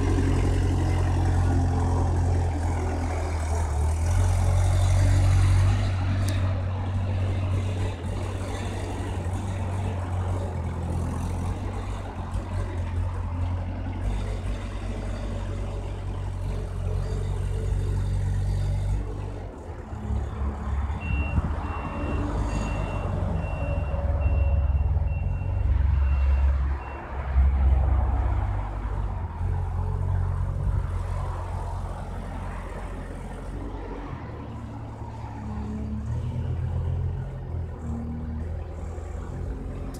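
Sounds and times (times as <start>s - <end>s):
wheel loader diesel engine: 0.0s - 39.9s
reversing alarm beeps: 21.0s - 27.1s.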